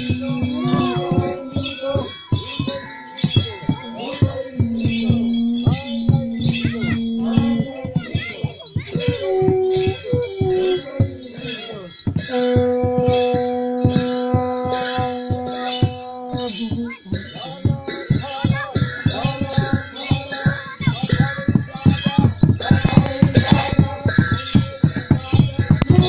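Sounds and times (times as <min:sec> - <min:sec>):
long held notes: 0:00.0 - 0:18.1
drum beating steady rhythm: 0:00.0 - 0:26.0
metallic jingling: 0:00.0 - 0:26.0.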